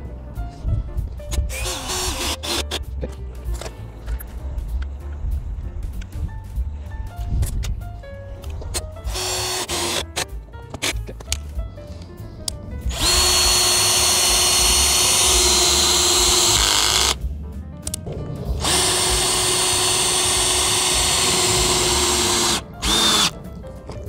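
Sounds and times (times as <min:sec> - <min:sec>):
cordless drill motor whining: 0:01.5 - 0:02.8, 0:09.1 - 0:10.0, 0:12.9 - 0:17.2, 0:18.6 - 0:23.3.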